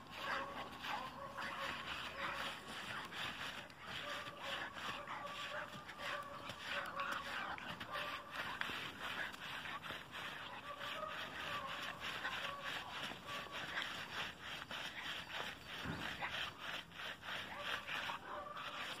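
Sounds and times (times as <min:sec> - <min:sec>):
dog paws digging in soil: 0:00.0 - 0:19.0.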